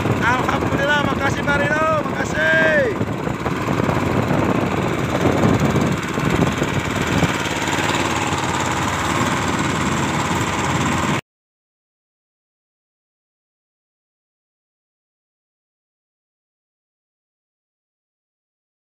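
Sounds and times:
boat engine running: 0.0s - 11.2s.

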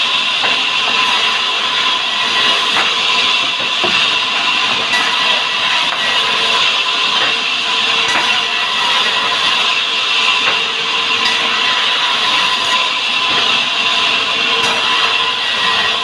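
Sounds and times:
band saw cutting wood: 0.0s - 16.0s.

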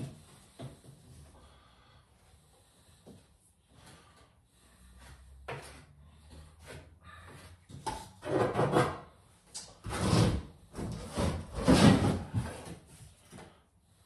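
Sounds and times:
plasterboard rubbing against wall: 9.8s - 12.8s.

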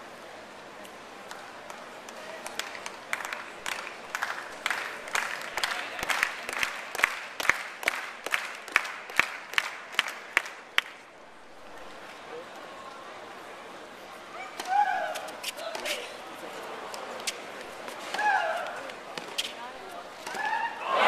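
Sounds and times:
loud claps close by: 2.1s - 11.0s
crowd applauding: 2.2s - 11.0s.

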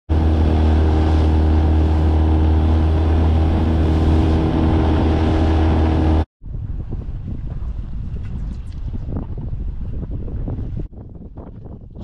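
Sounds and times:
outboard motor running: 0.1s - 6.3s.

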